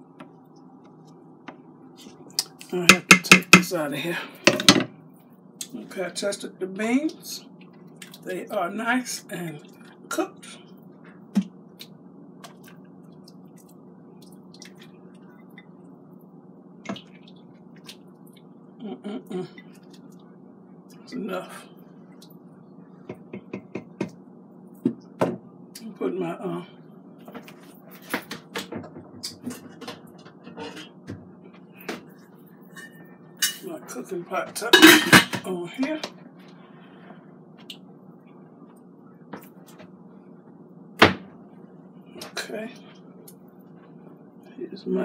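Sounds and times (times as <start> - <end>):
steady low hum: 0.0 - 45.0
soft wet squishes: 7.1 - 8.3, 10.6 - 18.8, 19.6 - 21.1
cookware clicking and clanking: 34.7 - 35.4.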